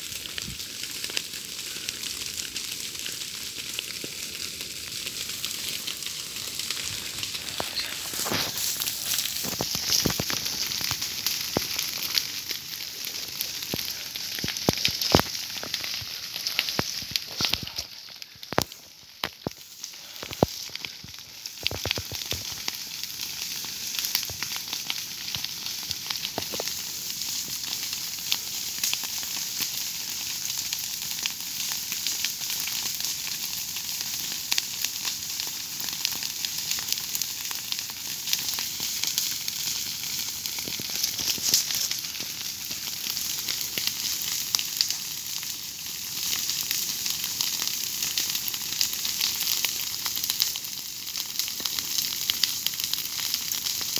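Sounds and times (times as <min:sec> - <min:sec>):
grass fire crackling: 0:00.0 - 0:53.9.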